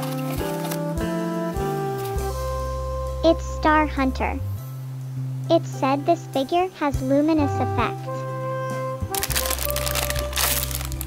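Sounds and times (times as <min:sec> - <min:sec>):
foil bag crinkling: 0:00.0 - 0:00.8, 0:09.1 - 0:11.0
background music: 0:00.0 - 0:11.0.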